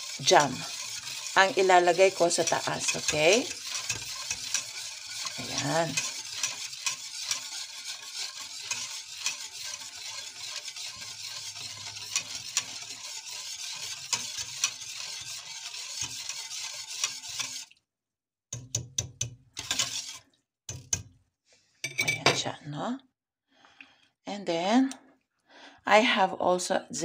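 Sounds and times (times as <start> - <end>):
whisk swishing in metal pot: 0.0 - 17.8, 18.6 - 21.1.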